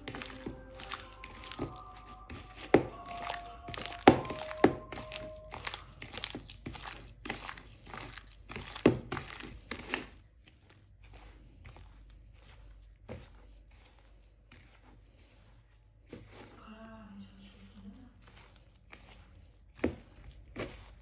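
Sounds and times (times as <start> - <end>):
rustling: 0.0 - 21.0.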